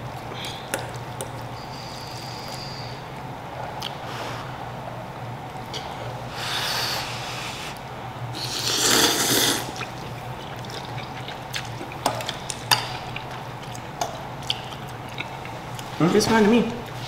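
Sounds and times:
low fan hum: 0:00.0 - 0:17.0
slurping noodles: 0:08.4 - 0:11.7.

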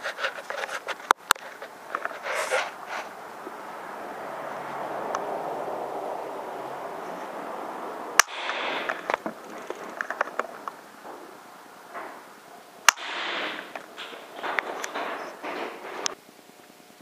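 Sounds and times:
small ticks and scrapes: 0:00.0 - 0:03.2
air rifle shots: 0:08.1 - 0:16.1.

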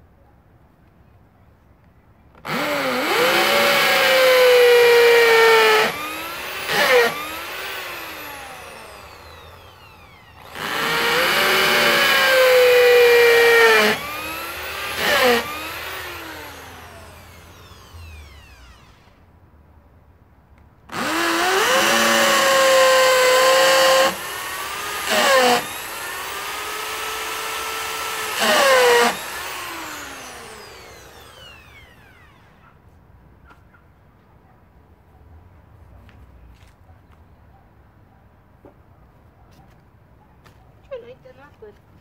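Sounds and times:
power tool motor whining: 0:02.4 - 0:19.3, 0:20.9 - 0:32.6.

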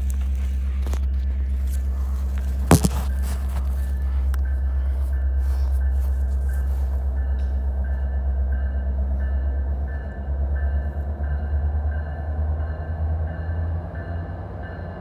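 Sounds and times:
low pulsing engine rumble: 0:00.0 - 0:15.0.

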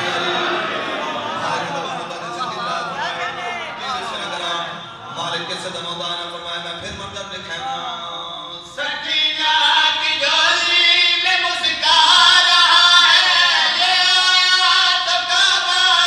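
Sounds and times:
men singing over loudspeakers: 0:00.0 - 0:02.0, 0:08.8 - 0:16.0.

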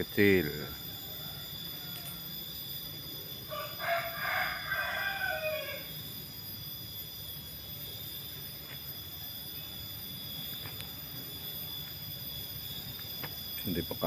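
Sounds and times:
rooster crowing: 0:00.8 - 0:06.2.

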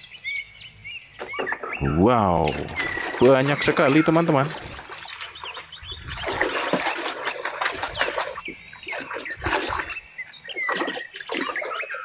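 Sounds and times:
small birds chirping: 0:00.0 - 0:12.0
splashing and rubbing while washing: 0:02.8 - 0:12.0.

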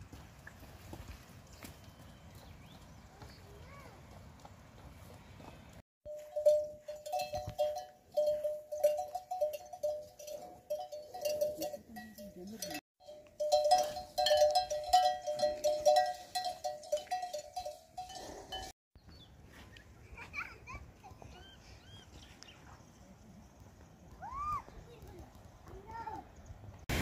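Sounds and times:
metal livestock bells clanking: 0:06.0 - 0:18.8.

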